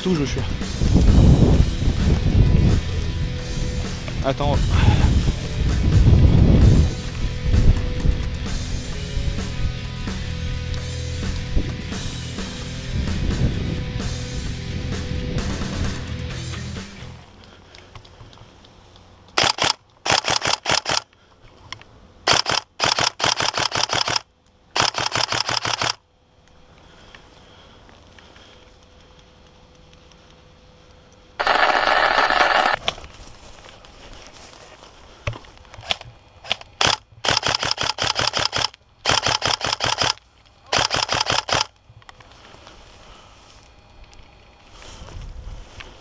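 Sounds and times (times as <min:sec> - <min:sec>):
airsoft rifle firing bursts: 0:19.4 - 0:21.1, 0:22.3 - 0:24.2, 0:24.8 - 0:26.0, 0:31.4 - 0:32.8, 0:36.5 - 0:41.7.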